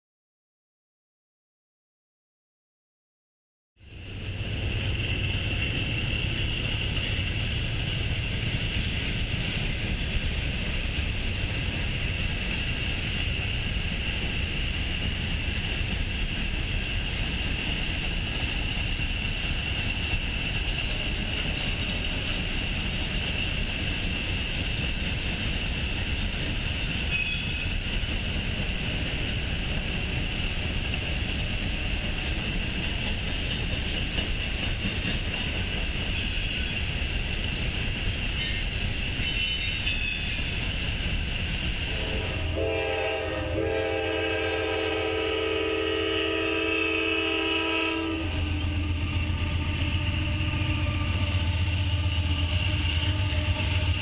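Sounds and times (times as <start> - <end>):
train wheels rumbling: 3.8 - 54.0
locomotive air horn: 41.9 - 54.0.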